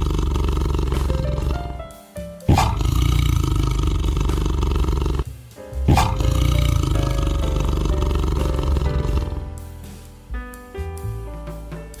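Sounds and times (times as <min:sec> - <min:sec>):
tiger roaring: 0:00.0 - 0:01.8, 0:02.5 - 0:05.2, 0:05.9 - 0:09.5.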